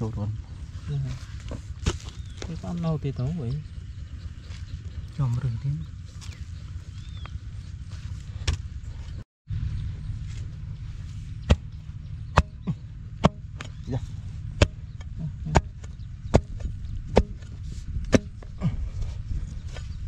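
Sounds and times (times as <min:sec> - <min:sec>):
steady low rumble: 0:00.0 - 0:20.0
digging tool chopping into soil: 0:01.8 - 0:02.5, 0:12.3 - 0:13.9, 0:14.5 - 0:18.5.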